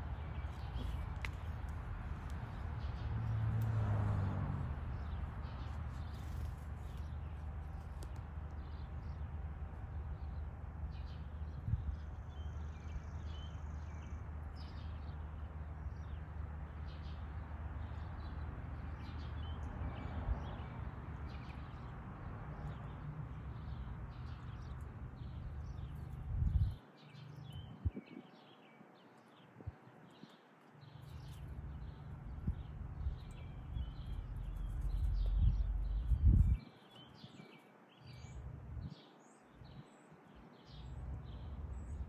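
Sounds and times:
small birds chirping: 0.0 - 42.0
low rumble: 32.3 - 36.6.

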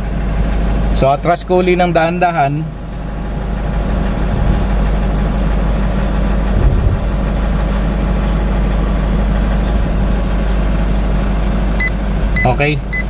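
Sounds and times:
truck engine idling: 0.0 - 13.0
low thump: 6.5 - 7.2.

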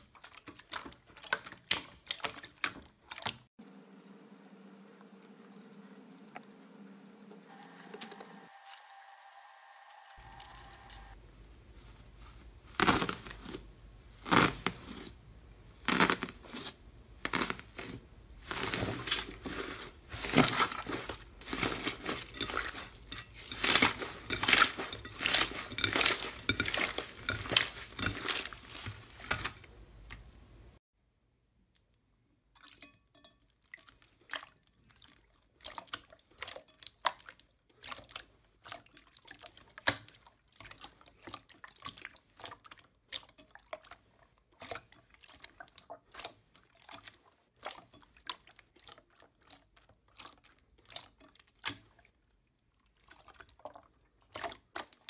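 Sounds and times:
slime squelching in crinkling foil: 10.2 - 30.3.

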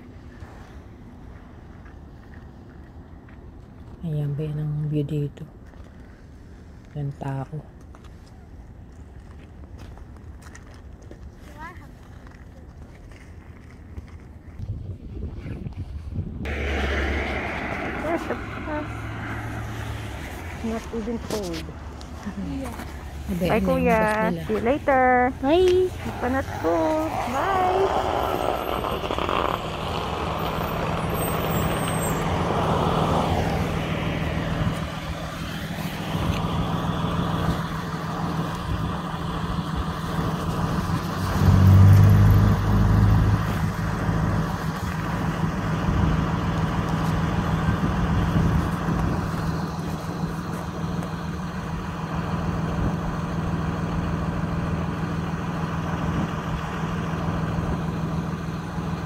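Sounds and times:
bus engine drone: 0.0 - 15.2, 16.0 - 59.0.

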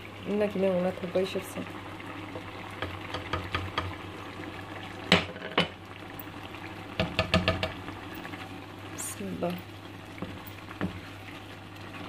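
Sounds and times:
spoon knocking against pot: 7.0 - 7.8
wooden spoon stirring pot: 9.1 - 12.0.

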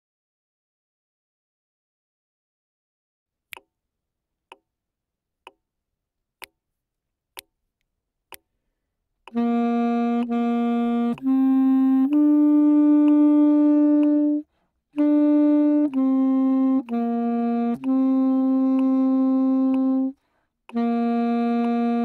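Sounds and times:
metronome clicks: 5.4 - 5.7, 8.3 - 8.5, 9.2 - 22.0
tenor saxophone melody: 9.2 - 22.0.

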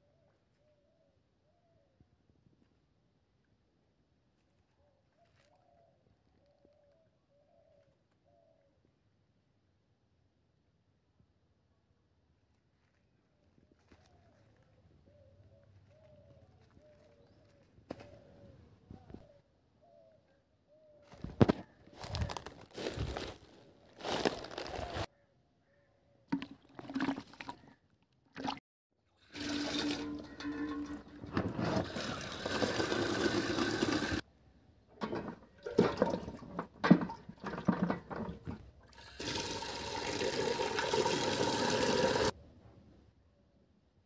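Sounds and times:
dry palm fronds rustling: 22.0 - 25.1
water pouring into a pot: 29.2 - 34.2, 38.9 - 42.3.

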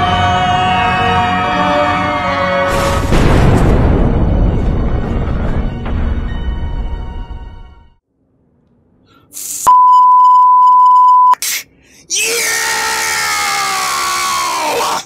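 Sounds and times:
film music: 0.0 - 8.0
censor bleep: 9.7 - 11.4.

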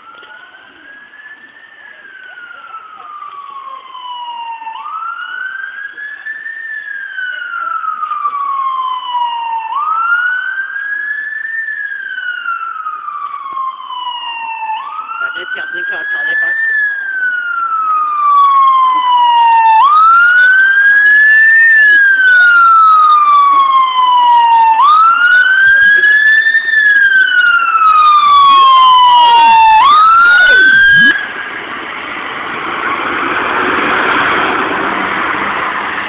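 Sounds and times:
fire engine siren wailing: 0.0 - 36.0
rushing noise: 30.5 - 36.0.

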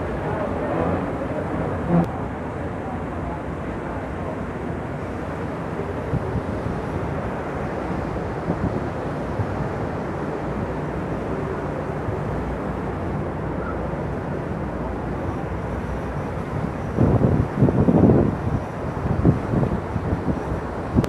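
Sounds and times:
boat engine hum: 0.0 - 21.0
water rushing along hull: 0.0 - 21.0.

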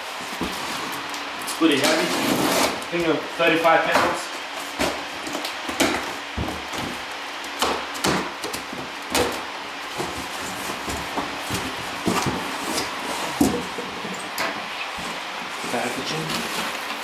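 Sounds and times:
packing tape ripping off cardboard: 0.3 - 3.1
cardboard flaps crackling and knocking: 7.6 - 13.8.

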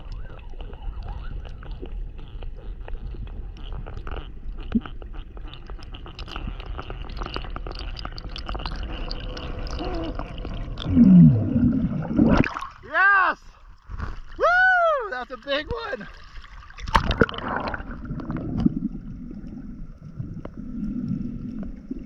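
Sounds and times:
crackling clicks: 0.0 - 10.9
low underwater rumble: 0.0 - 12.8, 16.2 - 22.0.

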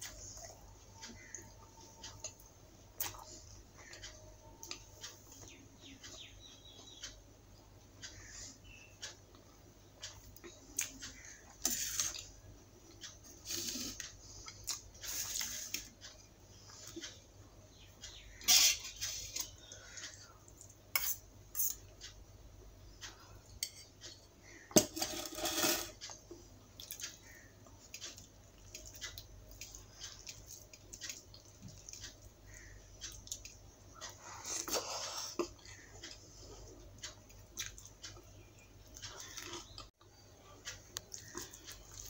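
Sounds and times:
steel dishes and spoon clinking: 23.6 - 26.0.

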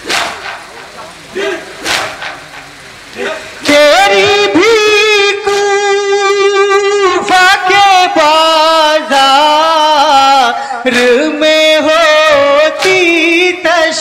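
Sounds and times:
man singing unaccompanied: 3.2 - 14.0.

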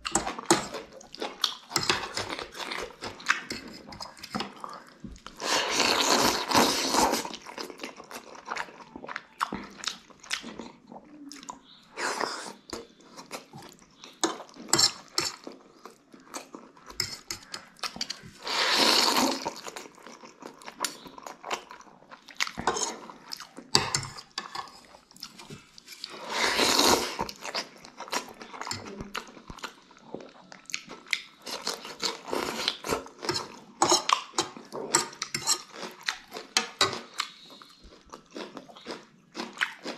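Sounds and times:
wet chewing and smacking: 0.0 - 6.5, 7.3 - 11.8, 19.3 - 26.1, 27.2 - 39.9
noodles slurping: 18.4 - 19.6.

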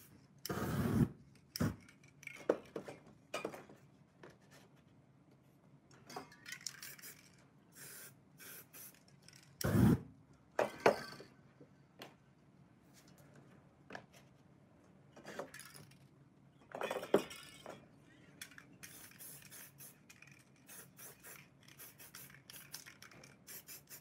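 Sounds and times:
spray paint hissing: 7.8 - 9.0, 18.8 - 22.8, 23.4 - 24.0
spray cans clinking: 18.8 - 24.0.

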